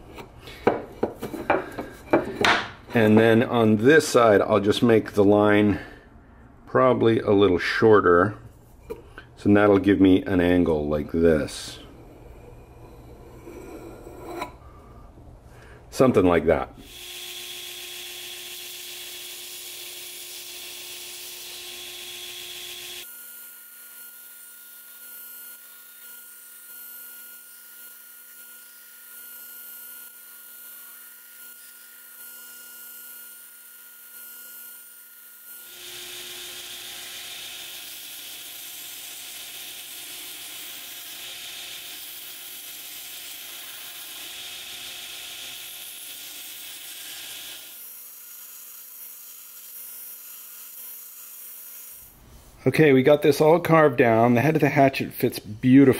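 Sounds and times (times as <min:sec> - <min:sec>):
belt grinder sanding wood: 0:16.8 - 0:52.1.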